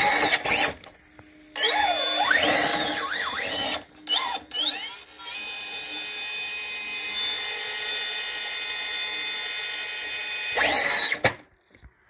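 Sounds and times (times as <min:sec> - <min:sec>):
electric motor whine: 0:00.0 - 0:11.3.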